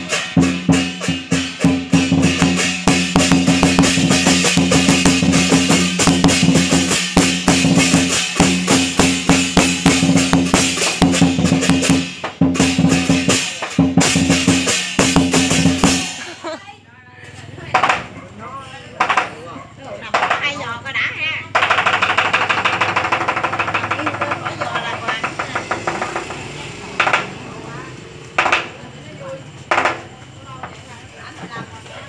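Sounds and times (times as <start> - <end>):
crashing cymbals: 0.0 - 16.4
drum beaten fast: 0.0 - 16.4, 21.5 - 27.5.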